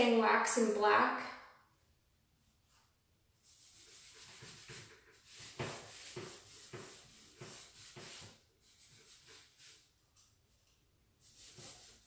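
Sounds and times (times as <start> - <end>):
cloth rag rubbing wood: 3.4 - 9.9, 11.2 - 12.0.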